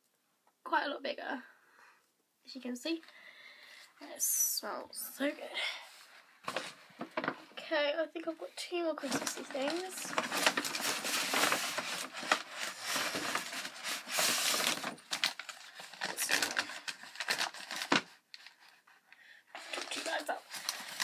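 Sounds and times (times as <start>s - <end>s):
packaging rustling and crinkling: 6.0s - 7.6s, 8.9s - 18.9s, 19.5s - 21.0s.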